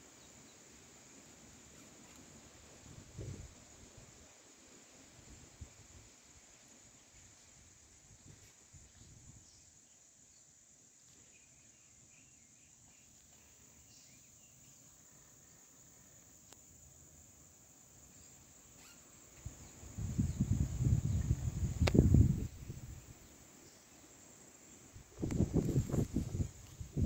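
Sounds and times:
insects buzzing: 0.0 - 27.0
wind buffeting microphone: 2.9 - 3.6, 19.8 - 23.2, 25.0 - 27.0.

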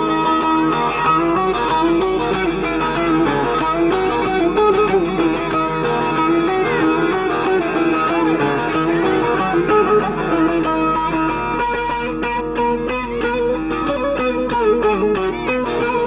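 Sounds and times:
plucked long-necked lute melody: 6.0 - 11.6.

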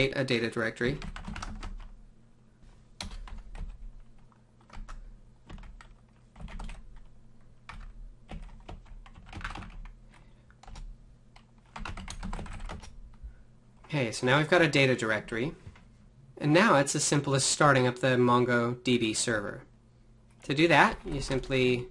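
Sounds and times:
low steady hum: 0.0 - 21.9
keyboard typing: 0.9 - 1.9, 3.0 - 13.0.

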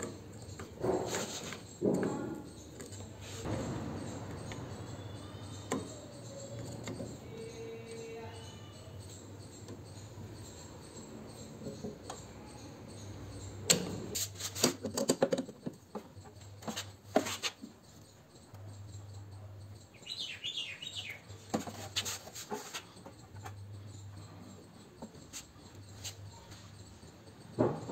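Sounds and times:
high chirps: 19.8 - 21.4.

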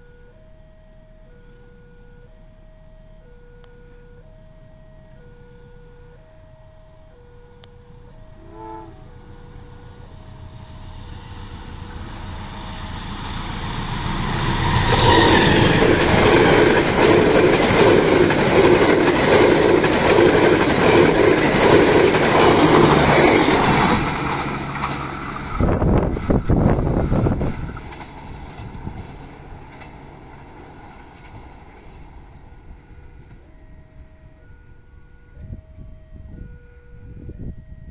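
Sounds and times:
distant train horn: 3.5 - 27.6
train rumbling past: 3.9 - 37.9
wheels clattering on rails: 9.5 - 33.5.

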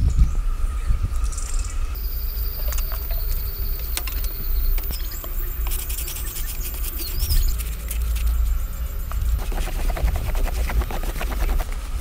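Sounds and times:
low steady rumble: 0.0 - 12.0
insects chirring: 0.3 - 12.0
bird call: 2.0 - 7.6.

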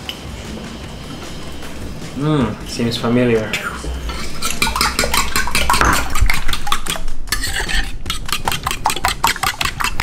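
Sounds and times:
fork whisking clinking in bowl: 4.1 - 10.0.

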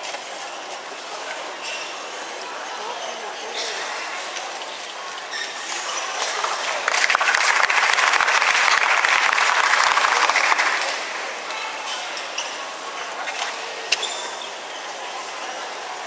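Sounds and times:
audience applauding: 6.1 - 11.4.

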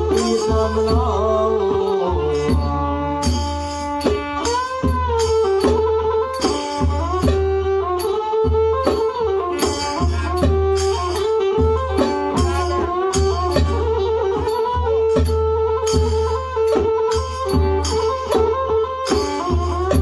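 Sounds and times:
barrel drums beat: 0.0 - 20.0
bowed fiddle melody: 0.0 - 20.0
sharp percussion strokes: 0.0 - 20.0.

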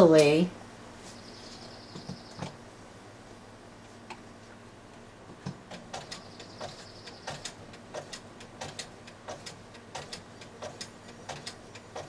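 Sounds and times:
faint motor hum: 0.0 - 12.0
sewing machine needle clicks: 5.4 - 12.0.

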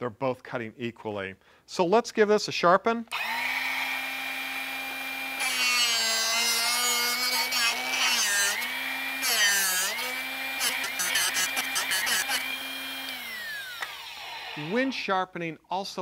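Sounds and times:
drill bit grinding rasp: 3.1 - 15.0
motor humming: 9.9 - 14.8.

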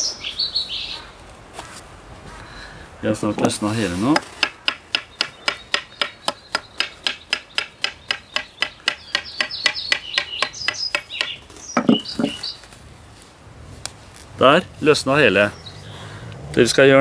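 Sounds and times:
faint birds chirping: 2.4 - 12.8, 14.4 - 17.0
knife tapping on stick: 4.4 - 12.3.

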